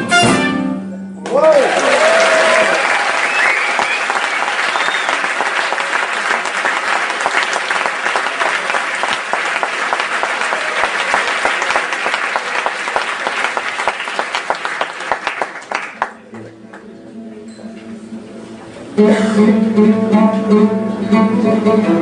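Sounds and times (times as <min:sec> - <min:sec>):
audience applauding: 0:01.2 - 0:16.9.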